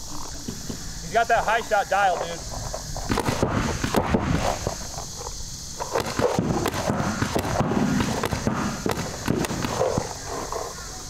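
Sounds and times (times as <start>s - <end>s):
paintball markers firing: 3.0s - 4.8s, 5.8s - 10.3s.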